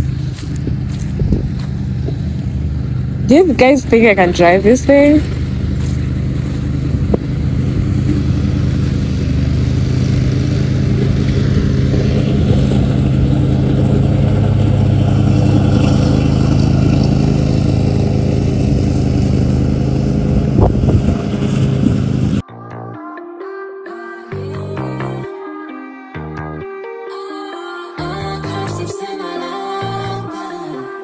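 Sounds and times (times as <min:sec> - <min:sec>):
lawn mower engine droning: 0:00.0 - 0:22.4.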